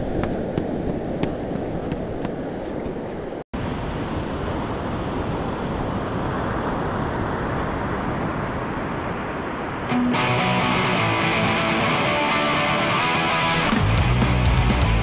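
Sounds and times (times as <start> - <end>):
wind rumble on microphone: 0.0 - 9.9
surf washing: 0.0 - 13.8.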